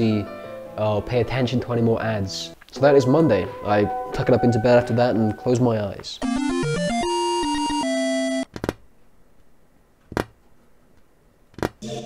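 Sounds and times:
synthesized jingle: 6.2 - 8.4.

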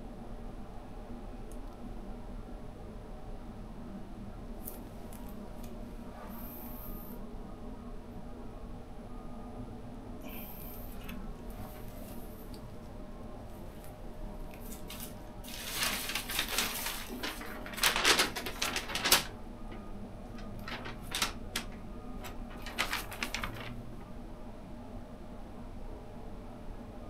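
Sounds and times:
paper crinkling and rustling: 13.8 - 24.1.

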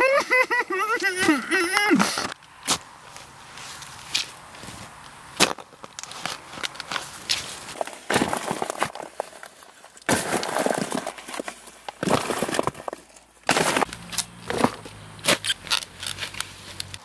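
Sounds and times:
shovelled soil landing: 7.0 - 9.4, 10.0 - 15.4.

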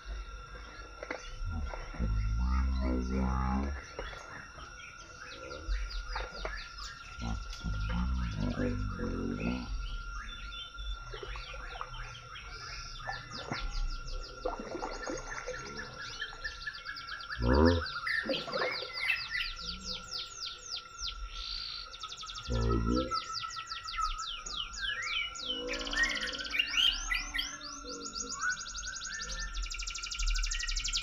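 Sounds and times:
steady high tone: 0.0 - 17.9
birds chirping: 0.0 - 31.0.

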